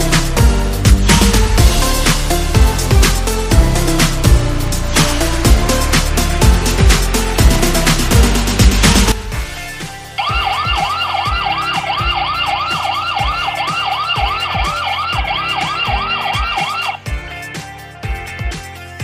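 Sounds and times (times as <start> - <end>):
background music with steady beat: 0.0 - 19.0
electronic alarm siren: 10.2 - 17.1.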